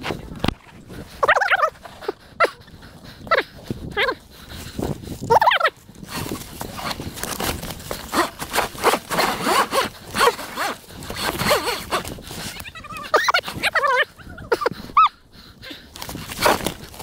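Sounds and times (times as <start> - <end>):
tyre scraping on loose stones: 6.0 - 12.6, 15.9 - 17.0.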